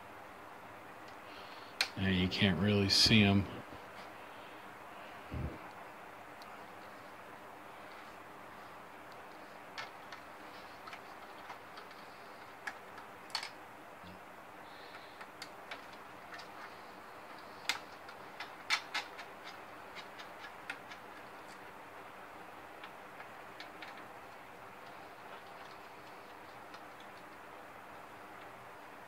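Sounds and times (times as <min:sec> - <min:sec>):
plastic parts clicking and tapping: 0:09.1 - 0:13.6, 0:14.8 - 0:21.6, 0:22.8 - 0:28.6.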